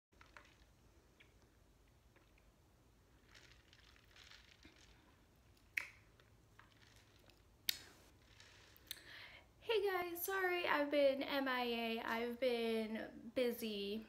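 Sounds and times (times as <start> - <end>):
slurping through a straw: 3.1 - 6.0, 6.6 - 9.1.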